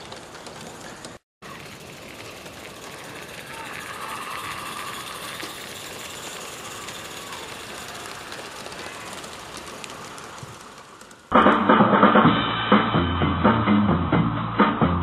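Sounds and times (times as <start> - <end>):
model steam locomotive running: 0.0 - 11.3
rapid fine clicking: 0.0 - 11.4
steam hissing: 2.8 - 11.2.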